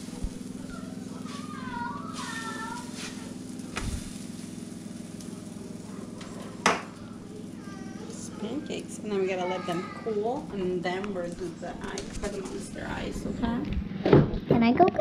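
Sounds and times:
low hum: 0:00.0 - 0:09.3.

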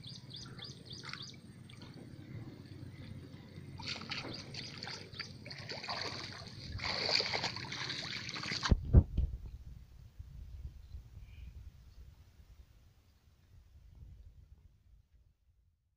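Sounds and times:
water splashing and dripping: 0:03.8 - 0:08.9
low thumps: 0:08.6 - 0:10.5.

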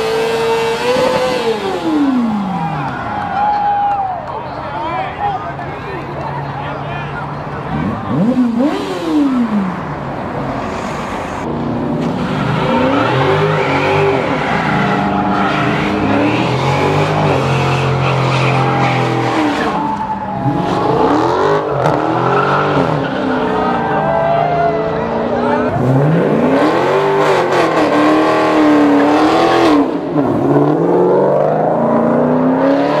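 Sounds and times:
car engine revving: 0:00.0 - 0:03.3, 0:07.3 - 0:23.9, 0:25.0 - 0:33.0
tyres spinning in burnout: 0:07.5 - 0:33.0.

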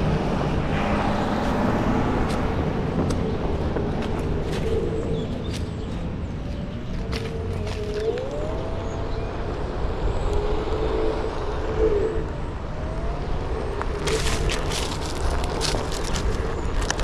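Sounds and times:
tire rumbling on pavement: 0:00.0 - 0:17.0
tire crackling over dry leaves: 0:02.2 - 0:11.5, 0:13.0 - 0:17.0.

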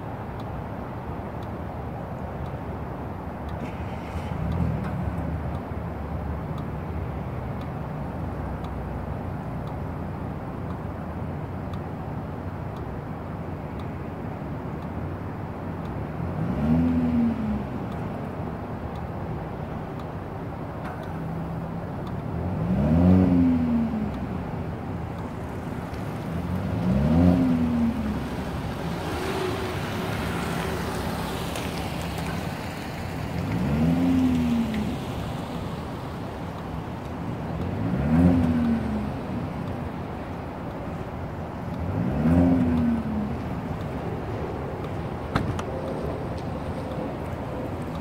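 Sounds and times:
engine revving: 0:22.4 - 0:24.2, 0:25.5 - 0:32.1, 0:33.4 - 0:35.3, 0:37.3 - 0:39.6, 0:41.8 - 0:43.7
car engine idling: 0:24.2 - 0:37.9.

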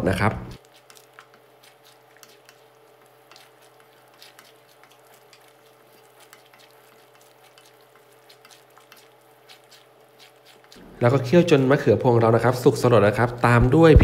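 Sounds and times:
wooden spatula stirring: 0:00.5 - 0:13.6
curry bubbling in a pan: 0:00.6 - 0:11.6.

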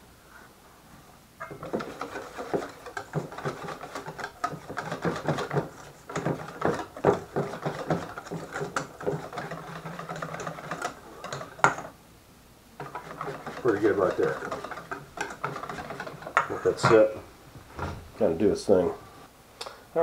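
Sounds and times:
bowl knocking and scraping: 0:01.4 - 0:11.9.

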